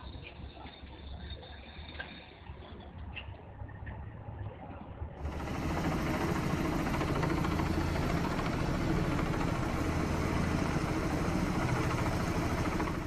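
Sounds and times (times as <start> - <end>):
helicopter flying overhead: 5.2 - 13.0.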